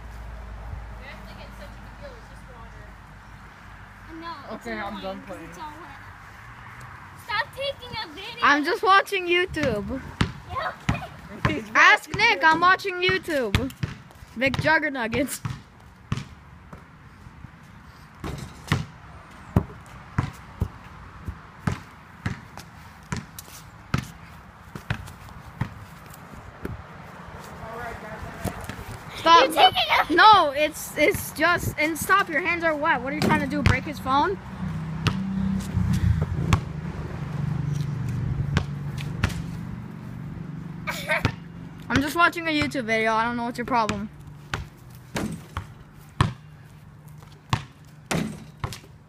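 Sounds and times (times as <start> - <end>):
basketball bouncing: 9.5 - 16.9, 18.2 - 19.0, 19.6 - 25.8, 33.1 - 34.2, 35.0 - 35.3, 41.2 - 42.8, 43.7 - 46.5, 47.5 - 49.0.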